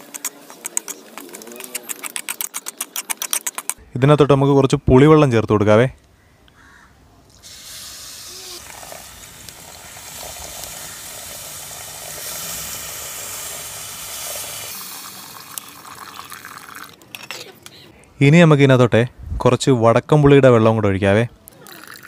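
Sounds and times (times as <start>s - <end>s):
liquid pouring into sizzling oil: 7.4s - 17.0s.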